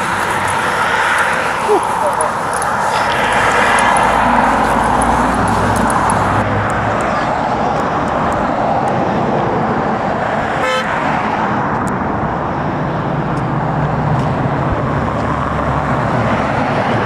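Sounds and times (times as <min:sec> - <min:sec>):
road traffic passing: 0:00.0 - 0:17.0
vehicle engine rumble: 0:00.0 - 0:17.0
car horn toot: 0:10.6 - 0:11.0.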